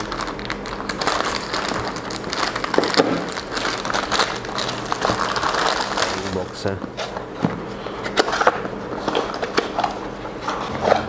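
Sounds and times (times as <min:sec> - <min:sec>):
plastic mailer bag crinkling: 0:00.0 - 0:06.8.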